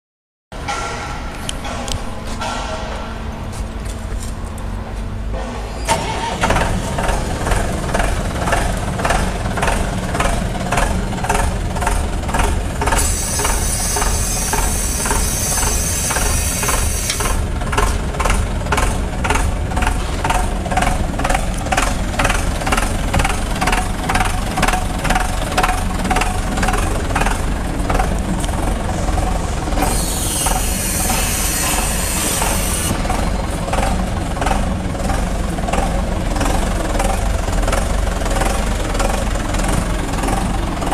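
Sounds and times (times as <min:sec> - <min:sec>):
concrete pump rhythmic pulsing: 0:06.4 - 0:40.9
hiss: 0:13.0 - 0:17.4, 0:29.8 - 0:33.0.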